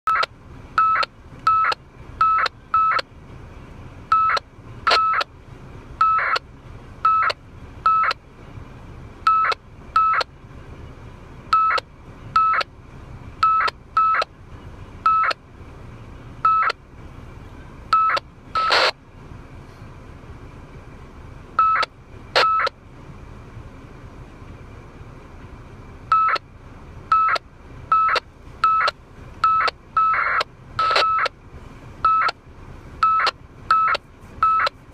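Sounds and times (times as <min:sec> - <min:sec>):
short radio data beeps: 0:00.1 - 0:03.1, 0:04.1 - 0:05.3, 0:06.0 - 0:06.4, 0:07.0 - 0:08.2, 0:09.3 - 0:10.3, 0:11.5 - 0:12.7, 0:13.4 - 0:14.3, 0:15.0 - 0:15.4, 0:16.4 - 0:16.8, 0:17.9 - 0:19.0, 0:21.6 - 0:22.8, 0:26.1 - 0:26.4, 0:27.1 - 0:31.4, 0:32.0 - 0:32.4, 0:33.0 - 0:34.8
low radio hiss: 0:00.3 - 0:34.9.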